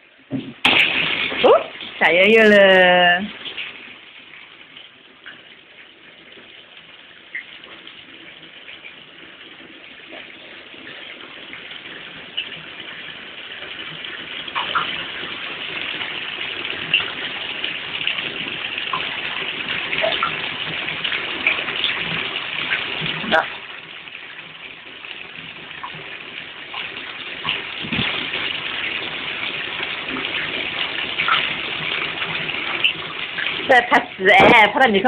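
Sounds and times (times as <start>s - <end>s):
water sloshing and splashing in a tub: 0.2s - 35.0s.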